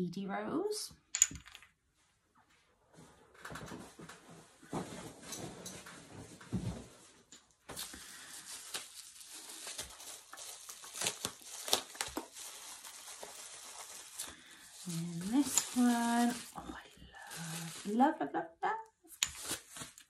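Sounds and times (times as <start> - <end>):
bubble wrap crinkling: 7.6 - 18.3, 19.1 - 20.0
bubble wrap snaps: 7.7 - 18.0, 19.1 - 20.0
handling noise in a box: 7.8 - 18.0.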